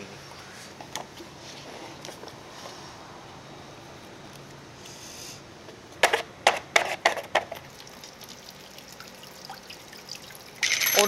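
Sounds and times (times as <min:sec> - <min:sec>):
water splashing in spurts: 0:07.6 - 0:11.0.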